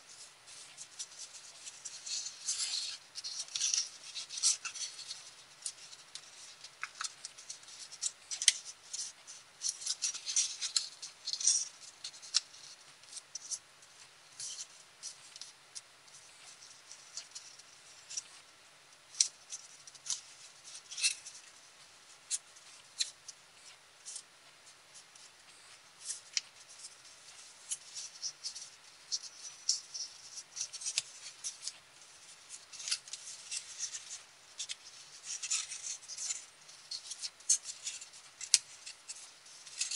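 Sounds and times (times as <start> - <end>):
paper crinkling as it is folded: 0.0 - 39.9.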